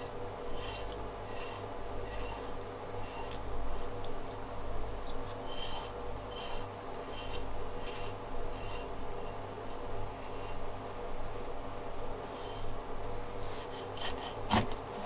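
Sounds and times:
knife scraping fish scales: 0:00.0 - 0:04.0, 0:05.3 - 0:10.6.

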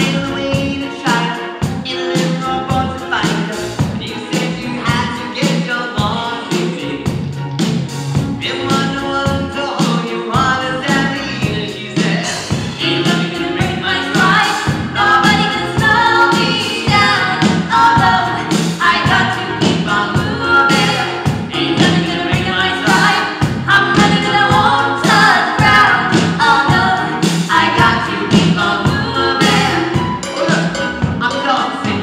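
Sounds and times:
backing music with steady beat: 0:00.0 - 0:32.0
cast singing together: 0:08.5 - 0:32.0.

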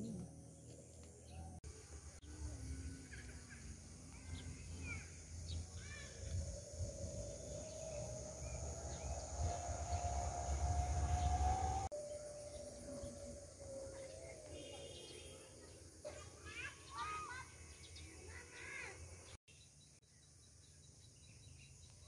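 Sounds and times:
high insect hiss: 0:01.7 - 0:19.3
bird chirps: 0:02.6 - 0:22.0
low rumble: 0:03.8 - 0:14.4
drawn-out rising tone: 0:06.3 - 0:14.3.

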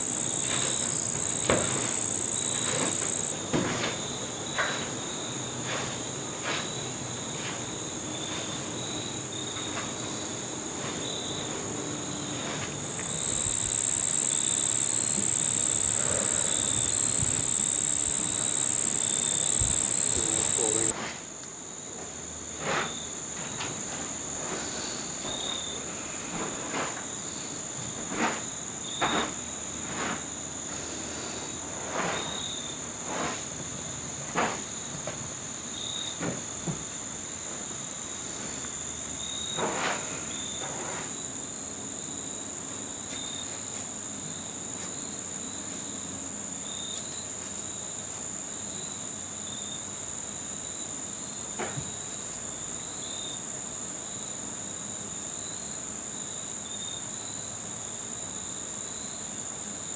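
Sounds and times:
crickets trilling: 0:00.0 - 0:05.4, 0:12.1 - 0:21.0, 0:40.3 - 0:59.9.

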